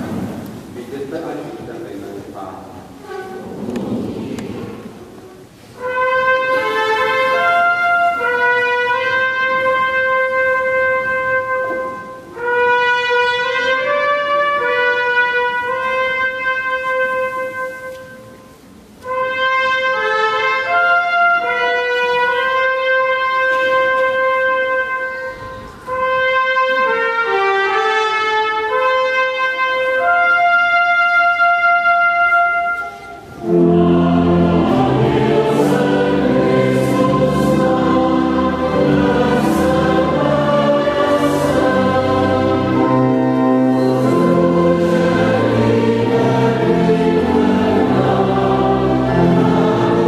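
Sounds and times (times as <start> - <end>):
trumpet playing slow melody: 2.9 - 3.6, 5.1 - 50.0.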